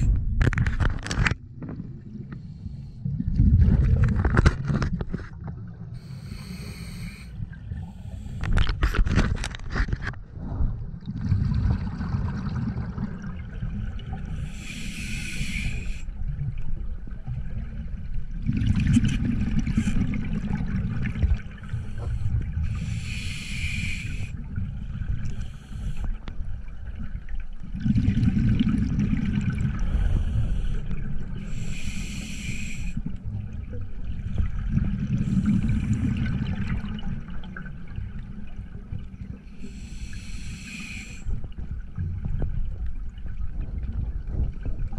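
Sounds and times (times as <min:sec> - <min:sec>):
regulator hiss on inhale: 0:06.0 - 0:08.8, 0:14.3 - 0:16.2, 0:21.6 - 0:24.4, 0:25.3 - 0:26.3, 0:29.9 - 0:33.1, 0:39.5 - 0:41.4
bubbling of exhaled air: 0:10.4 - 0:16.0, 0:18.4 - 0:24.5, 0:27.7 - 0:33.0.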